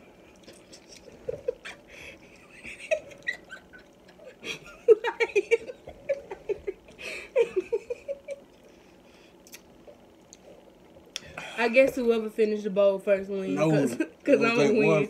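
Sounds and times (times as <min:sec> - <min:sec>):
woman laughing: 0:01.0 - 0:08.4.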